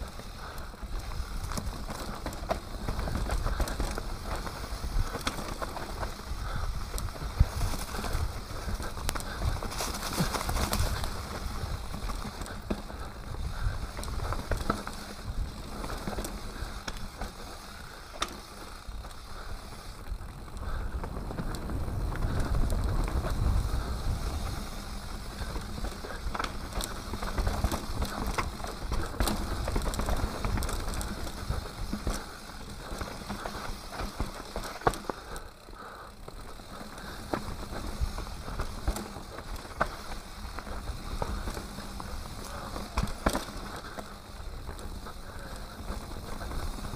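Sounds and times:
bike chain and frame rattling: 0.0 - 46.9
bike tyres rolling over dirt: 0.0 - 46.9
wind rumble on microphone: 20.0 - 32.2.

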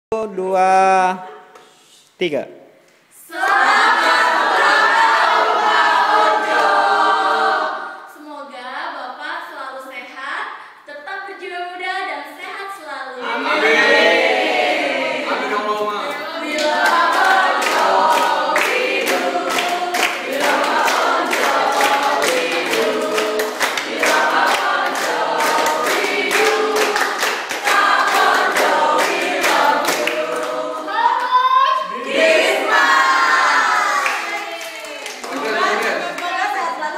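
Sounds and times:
group singing a celebration song: 3.1 - 8.2, 13.2 - 36.9
people clapping in time: 16.4 - 31.4, 33.8 - 36.6
people cheering: 30.9 - 36.0.

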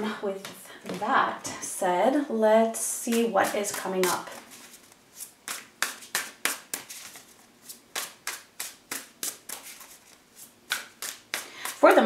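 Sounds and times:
cards being shuffled: 3.1 - 12.0.

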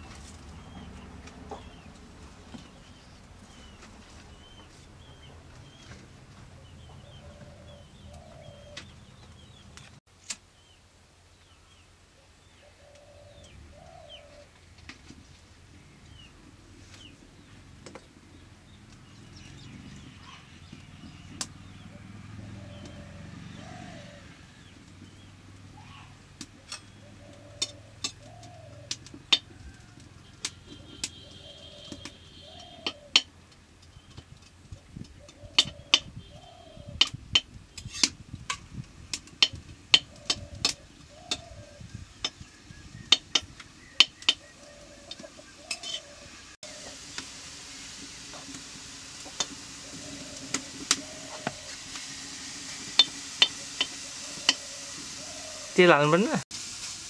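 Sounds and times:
twig fire crackling: 0.0 - 6.4, 24.6 - 36.4, 37.0 - 57.0
small birds chirping: 0.0 - 14.5, 15.7 - 38.1, 39.4 - 47.2, 52.9 - 56.4
dove cooing: 6.5 - 9.5, 12.2 - 14.5, 21.7 - 30.0, 30.6 - 33.3, 35.1 - 37.2, 39.5 - 41.9, 43.9 - 47.0, 49.8 - 51.8, 53.8 - 55.8.

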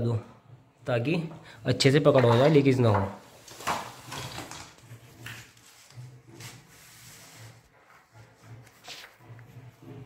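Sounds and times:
faint scrapes: 4.8 - 10.0.

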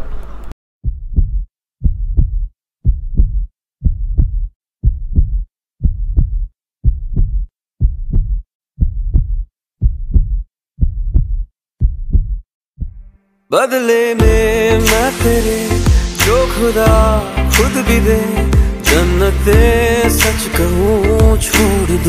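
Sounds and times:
heartbeat thumping: 0.8 - 13.0, 15.9 - 16.1, 16.9 - 17.2, 18.6 - 18.8, 21.2 - 21.5.

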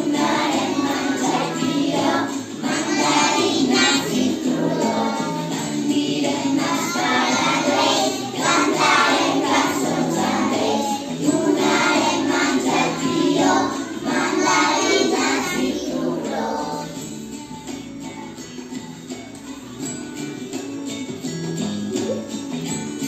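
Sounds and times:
children singing in chorus: 0.0 - 17.0
musical accompaniment: 0.0 - 23.0.

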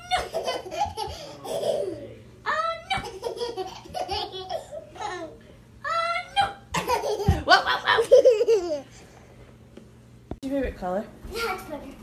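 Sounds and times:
toddler giggling: 0.0 - 2.1, 2.8 - 5.4, 6.7 - 8.9.

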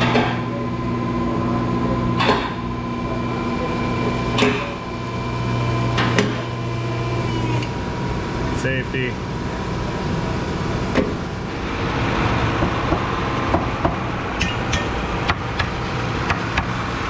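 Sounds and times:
electric pump motor humming: 0.0 - 8.6.

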